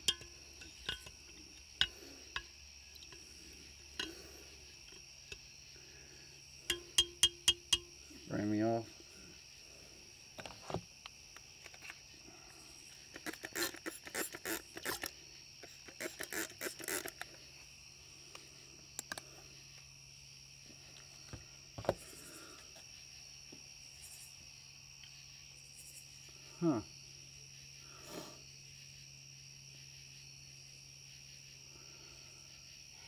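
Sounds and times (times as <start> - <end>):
spray bottle squirting: 13.1 - 17.3.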